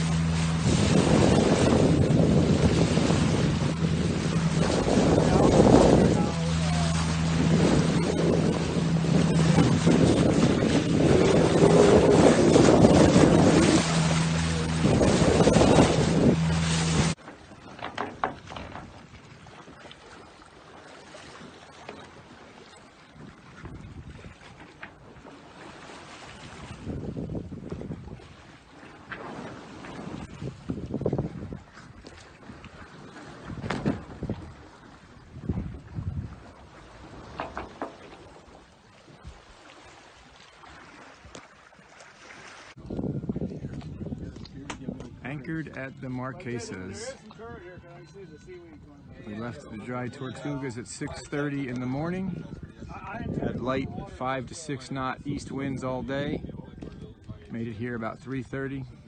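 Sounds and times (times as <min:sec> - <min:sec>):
wind noise on microphone: 0:00.0 - 0:17.6, 0:23.2 - 0:25.2, 0:26.4 - 0:28.5, 0:29.1 - 0:37.9, 0:42.8 - 0:51.3, 0:51.9 - 0:58.2
boat engine droning: 0:00.0 - 0:59.0
rushing bow water: 0:00.0 - 0:59.0
water lapping against hull: 0:00.0 - 0:59.0.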